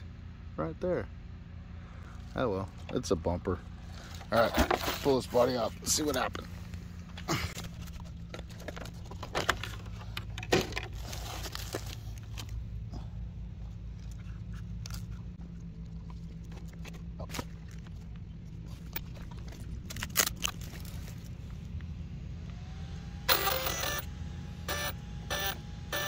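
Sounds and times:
steady low rumble: 0.0s - 25.8s.

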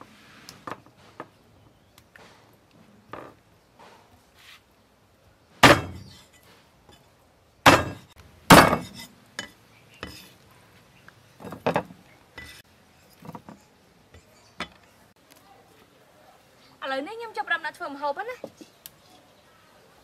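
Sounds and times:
cleaver chopping on wooden block: 5.6s - 6.1s, 7.7s - 9.0s.

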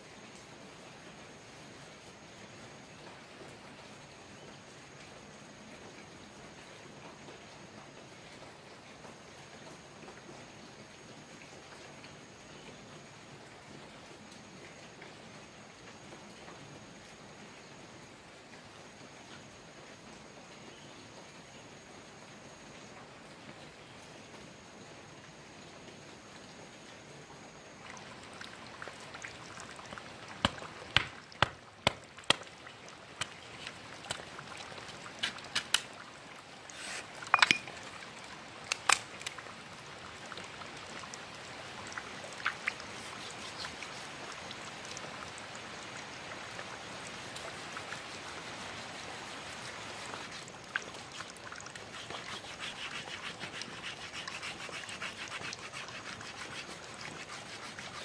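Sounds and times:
blade splitting bamboo: 30.4s - 32.5s, 35.2s - 35.9s
bamboo rasping on stone: 36.7s - 37.7s, 51.8s - 58.0s.

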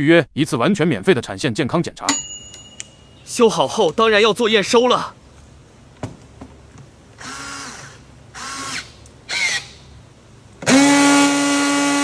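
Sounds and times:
strapping tool motor whine: 10.6s - 12.0s.

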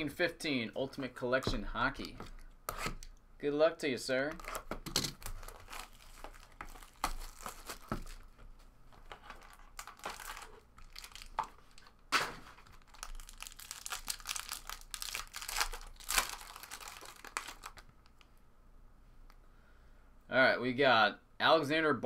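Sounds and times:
foil wrapper crinkling and tearing: 4.5s - 8.3s, 9.1s - 18.2s.

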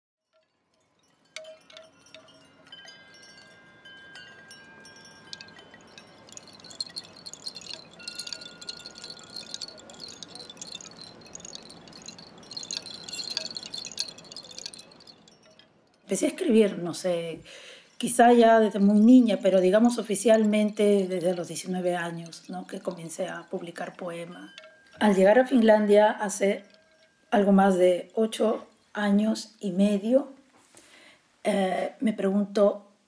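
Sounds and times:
wind chimes ringing: 0.3s - 28.9s.

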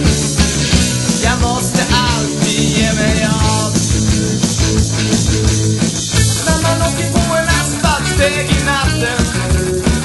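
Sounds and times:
rock band playing: 0.0s - 10.0s
person singing: 1.1s - 3.9s, 6.2s - 9.6s.

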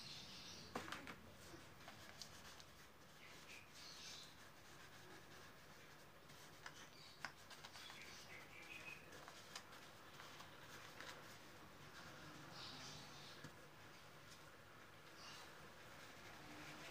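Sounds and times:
paintbrush dabbing on paper: 1.4s - 13.4s.

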